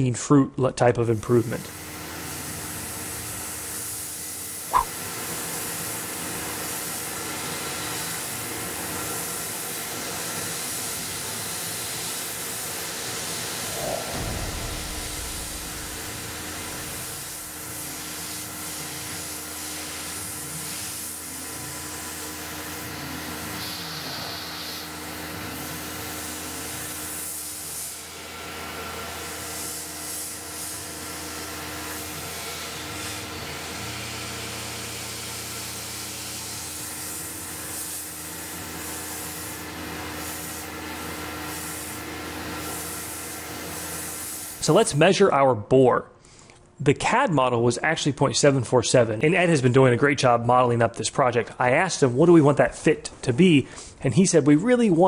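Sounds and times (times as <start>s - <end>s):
coolant spray hiss: 2.0s - 28.2s, 29.1s - 44.9s.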